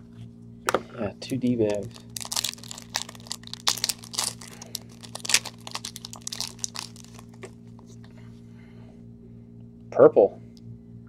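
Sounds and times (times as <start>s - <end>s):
wrapper tearing and crinkling: 1.6s - 7.5s.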